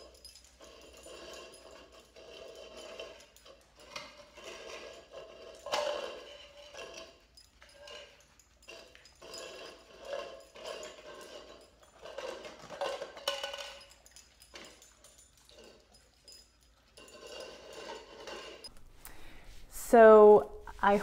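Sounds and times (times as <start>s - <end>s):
plastic cups scraping on tiles: 0.6s - 7.2s, 9.2s - 13.8s, 17.0s - 18.7s.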